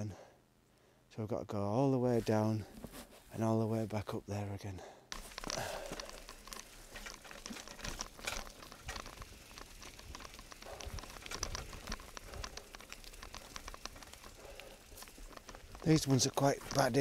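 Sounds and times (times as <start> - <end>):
bike rattling: 5.1 - 17.0
bike tyres crackling on stones: 5.1 - 17.0.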